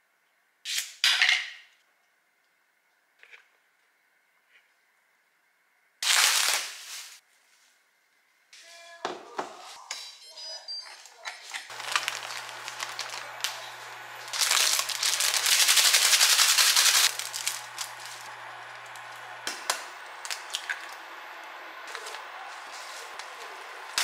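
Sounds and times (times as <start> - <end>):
plastic packet crinkling: 6.0 - 7.2, 11.7 - 24.0
low steady hum: 11.7 - 24.0.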